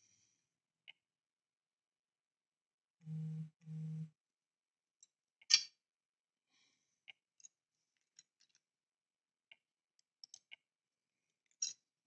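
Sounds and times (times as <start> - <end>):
small plastic parts clicking: 7.4 - 8.7, 9.5 - 10.6, 11.4 - 11.9.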